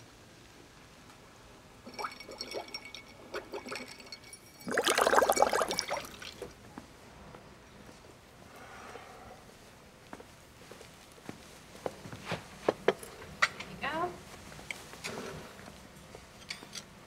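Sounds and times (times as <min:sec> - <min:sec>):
liquid pouring: 0:01.8 - 0:06.6.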